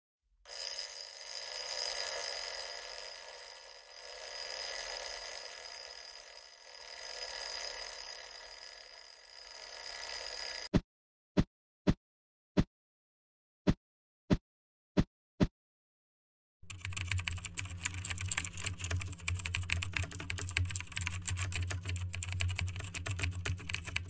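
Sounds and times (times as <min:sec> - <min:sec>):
alarm clock ringing: 0:00.5 - 0:10.7.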